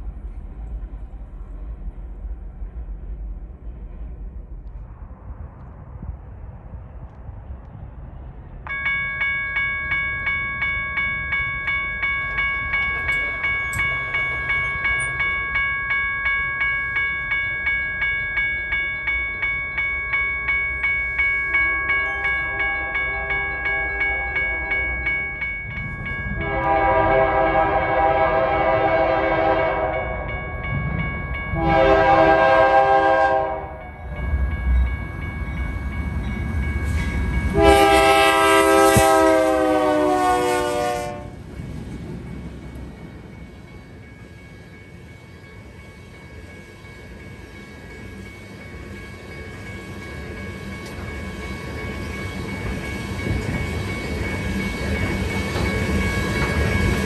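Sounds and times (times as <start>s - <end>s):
train rumble: 0.0s - 57.0s
crossing warning bell dinging: 8.6s - 57.0s
locomotive air horn blasts: 26.4s - 30.1s, 31.6s - 33.8s, 37.5s - 41.4s.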